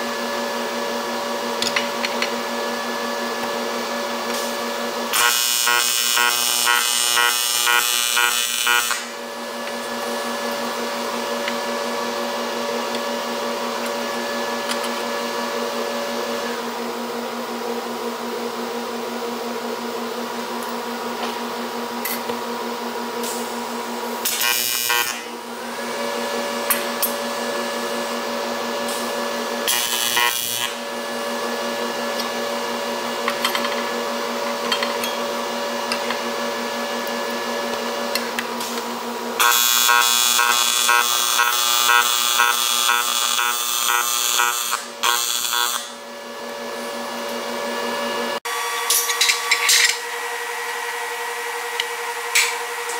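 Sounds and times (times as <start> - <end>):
welding arc buzzing: 4.3 - 12.4, 24.2 - 28.2, 28.9 - 31.6, 39.4 - 46.0.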